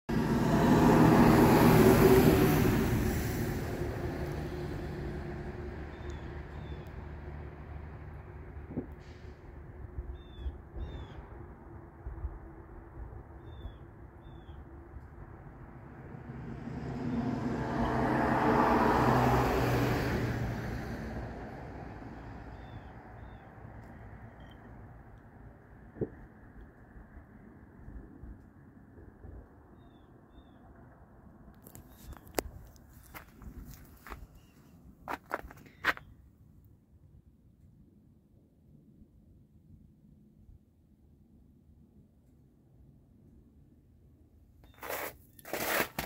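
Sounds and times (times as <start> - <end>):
vehicle engine passing by: 0.1 - 9.4, 15.8 - 23.3
road noise: 0.1 - 10.0, 14.7 - 36.6, 44.6 - 46.0.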